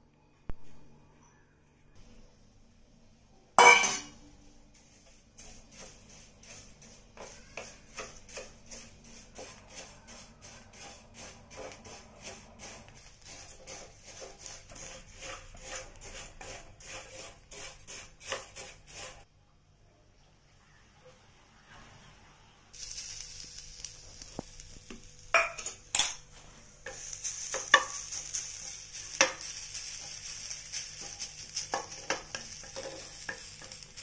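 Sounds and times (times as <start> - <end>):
rice scraping against steel pan: 4.8 - 19.2, 26.8 - 34.0.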